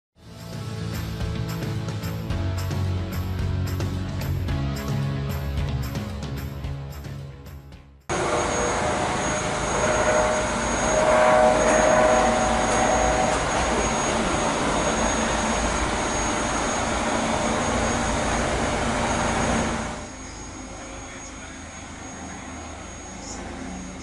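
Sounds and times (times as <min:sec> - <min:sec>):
brief music: 0:08.1 - 0:19.7
helicopter rotor and turbine noise: 0:08.1 - 0:24.0
turbine whine: 0:08.1 - 0:24.0.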